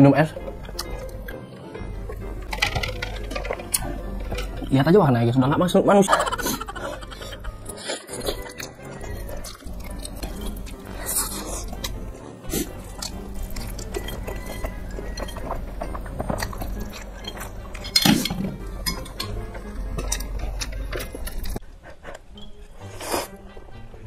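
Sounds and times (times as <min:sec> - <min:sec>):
man eating noodles: 0:06.2 - 0:21.6.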